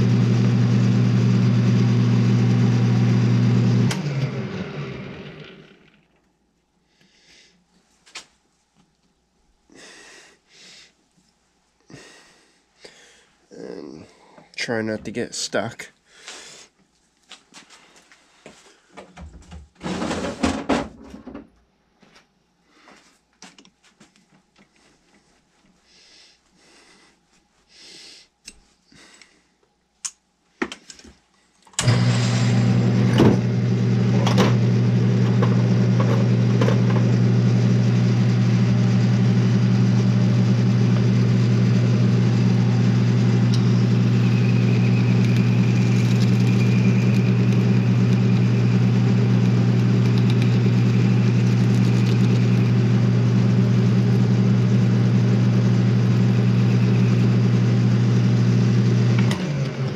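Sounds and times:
lathe motor humming: 0.0 - 6.0, 31.8 - 59.9.

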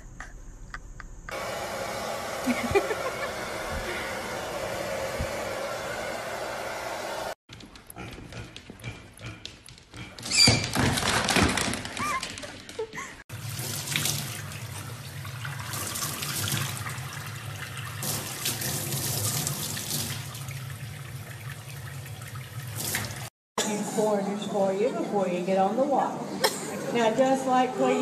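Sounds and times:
tap water splashing in sink: 13.4 - 20.7, 21.4 - 23.3.

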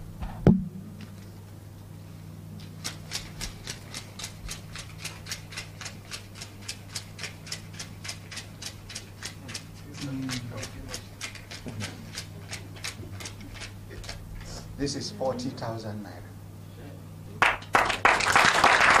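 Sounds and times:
low steady hum: 0.0 - 19.0
sharp knock: 0.5 - 0.8
banknotes flicked while counting: 2.8 - 14.2.

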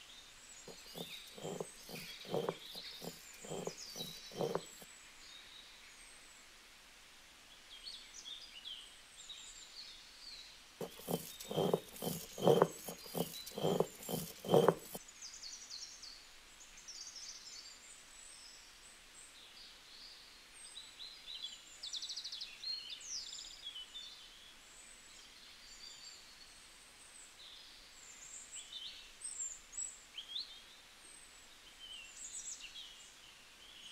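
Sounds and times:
stone roller grinding on stone: 0.7 - 4.8, 10.8 - 15.0.

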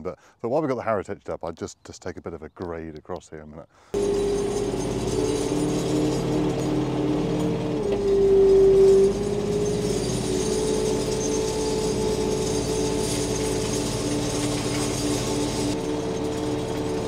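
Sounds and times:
harrow chains jingling and rattling: 4.0 - 17.0
tractor diesel engine running: 4.0 - 17.0.

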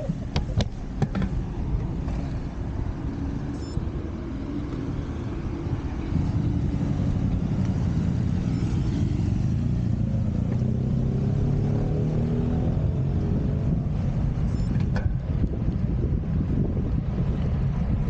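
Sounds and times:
wind rumble on microphone: 0.0 - 18.0
motorcycle engine accelerating: 4.3 - 14.0.

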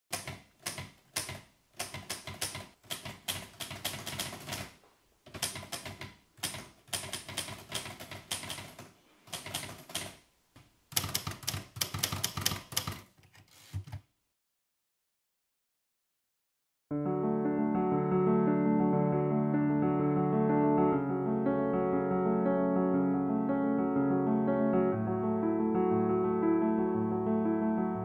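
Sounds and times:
rapid keyboard typing: 0.1 - 10.3, 10.9 - 14.0.

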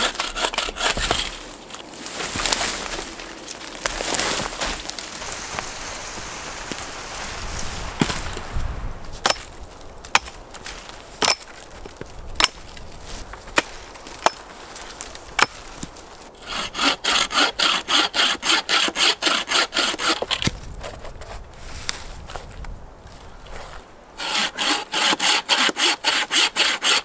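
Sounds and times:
bow saw cutting branch: 0.0 - 8.5, 15.4 - 21.4, 24.2 - 27.0.

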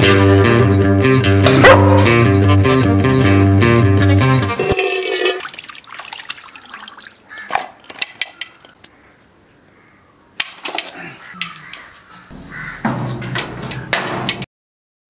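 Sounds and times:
metal pots clinking: 4.6 - 5.7, 7.5 - 8.8
water splashing in pots: 4.6 - 8.8.

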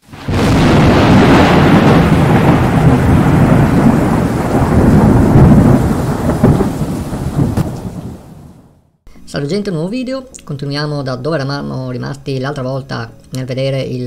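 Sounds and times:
rain: 0.0 - 8.7
thunder rumbling: 0.0 - 8.9.

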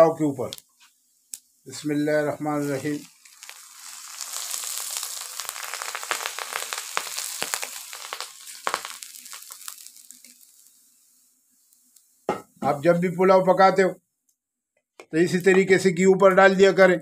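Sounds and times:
hot oil sizzling and crackling: 0.0 - 13.1.

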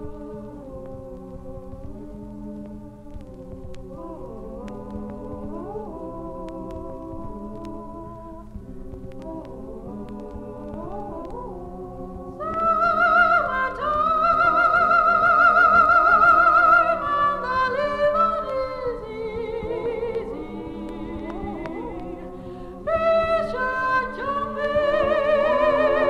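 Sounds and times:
women singing a cappella: 0.0 - 26.0.

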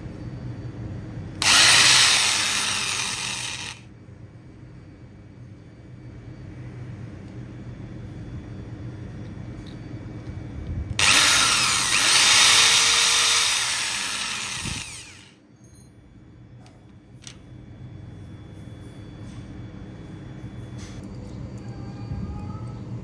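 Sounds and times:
electric drill boring through metal: 1.4 - 3.8, 11.0 - 15.3.

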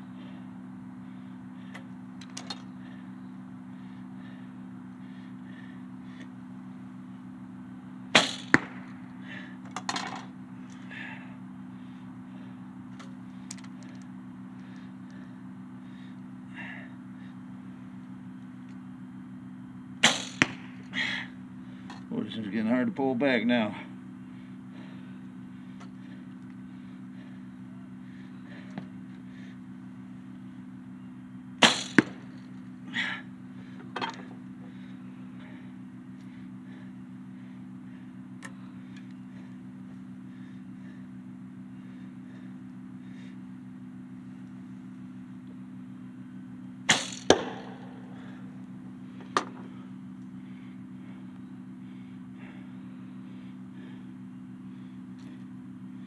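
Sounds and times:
arrows rustling and clicking: 1.7 - 2.8, 8.2 - 9.0, 12.9 - 14.9, 20.0 - 21.1, 31.6 - 32.7, 46.9 - 48.4
arrow striking target: 8.2 - 8.9, 20.0 - 20.9, 31.6 - 32.3, 46.9 - 47.9.

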